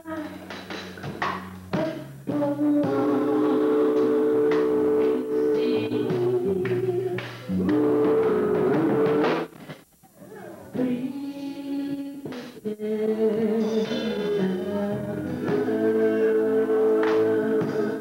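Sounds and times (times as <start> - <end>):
gospel vocal group singing: 0.0 - 18.0
male lead voice singing: 13.2 - 18.0.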